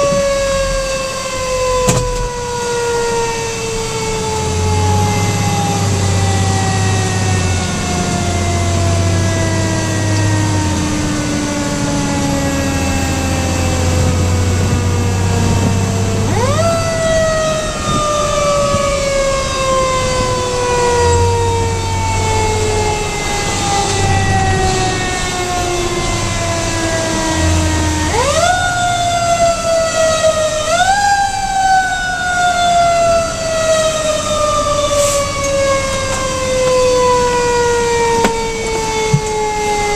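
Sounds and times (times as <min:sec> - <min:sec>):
mechanical fire siren: 0:00.0 - 0:39.9
truck engine droning: 0:00.0 - 0:39.9.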